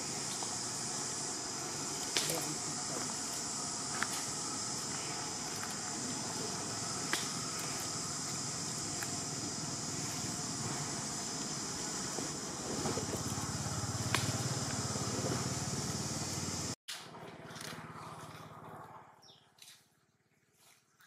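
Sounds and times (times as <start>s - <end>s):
high hiss: 0.0s - 16.8s
low motor-like rumble: 0.0s - 19.2s.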